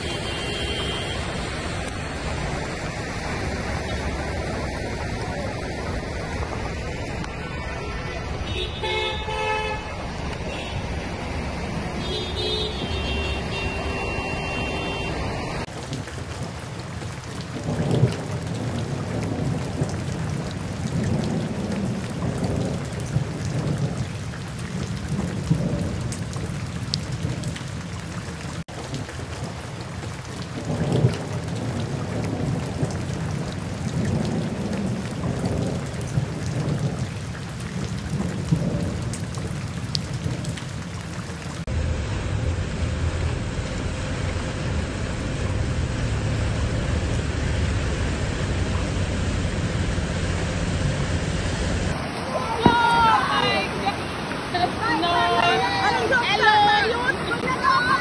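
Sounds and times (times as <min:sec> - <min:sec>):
heavy rain: 0:00.0 - 0:58.0
street traffic on flooded road: 0:00.0 - 0:58.0
low rumbles: 0:15.6 - 0:52.8.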